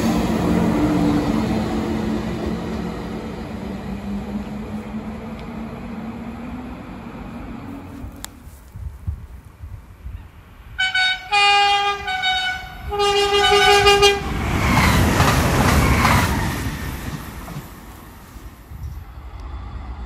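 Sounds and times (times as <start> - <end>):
train wheels rushing on rail: 0.0 - 9.2, 10.9 - 20.0
train two-tone horn blasts: 10.8 - 14.4.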